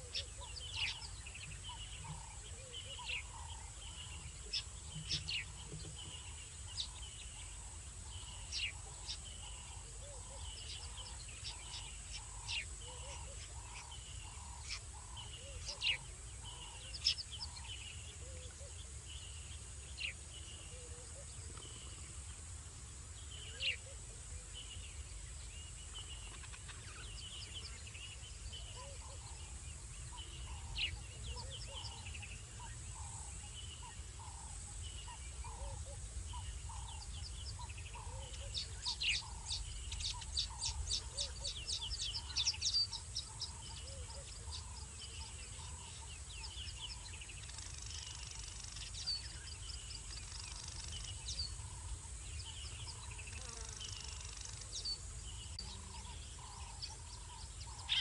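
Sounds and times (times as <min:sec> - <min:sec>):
high insect drone: 0:19.1 - 0:58.0.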